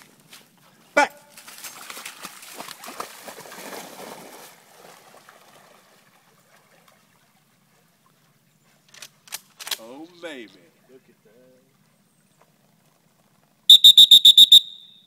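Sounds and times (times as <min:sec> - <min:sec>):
dog splashing through water: 0:01.3 - 0:08.3.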